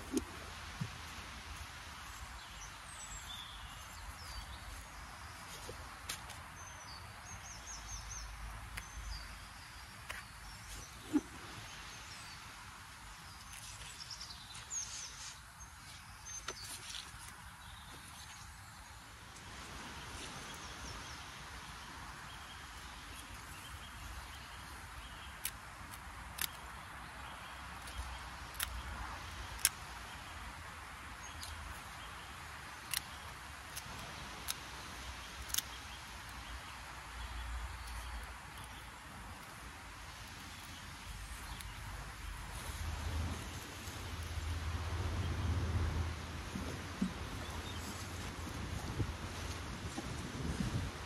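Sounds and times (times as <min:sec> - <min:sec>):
small birds chirping: 0:00.0 - 0:44.6, 0:46.2 - 0:50.0
sharp clicks: 0:25.3 - 0:26.8, 0:27.7 - 0:30.1, 0:32.7 - 0:36.6
wind rumbling on microphone: 0:37.8 - 0:51.0.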